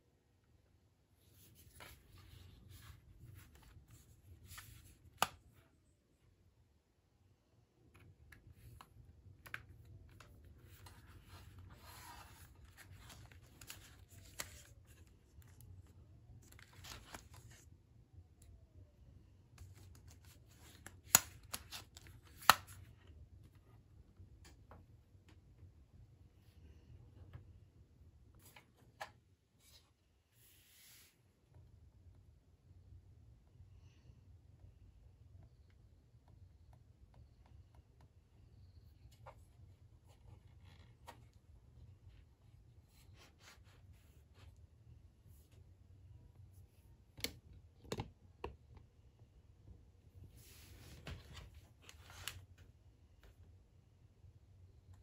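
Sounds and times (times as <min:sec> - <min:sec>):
rustling and scraping of gadgets: 0:50.3 - 0:52.5.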